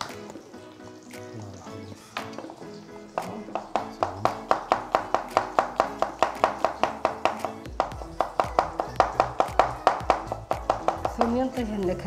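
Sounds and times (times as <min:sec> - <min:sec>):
music with fast percussive beat: 0:03.2 - 0:12.0.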